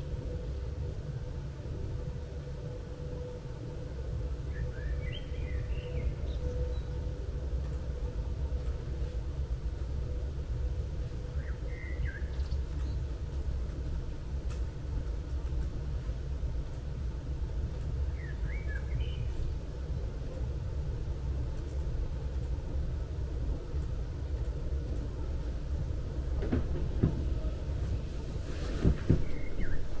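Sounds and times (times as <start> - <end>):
low town rumble: 0.0 - 30.0
bird chirp: 4.5 - 7.2, 11.3 - 13.1, 18.1 - 19.4, 29.2 - 30.0.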